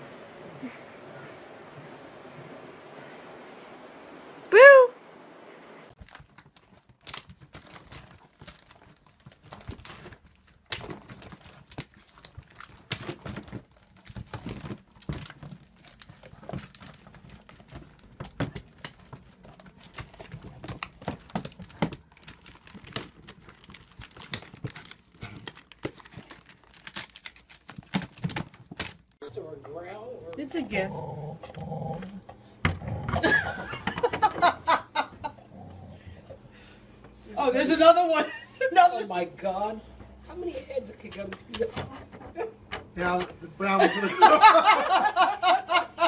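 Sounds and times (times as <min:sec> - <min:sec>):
wrapping paper crinkling: 0:06.0 - 0:29.2.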